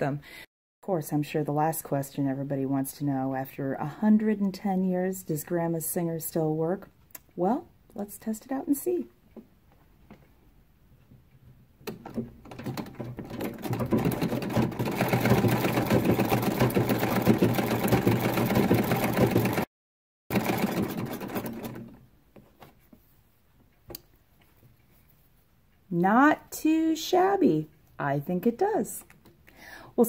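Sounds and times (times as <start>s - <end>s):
sewing machine rattling: 11.8s - 19.7s, 20.3s - 22.1s.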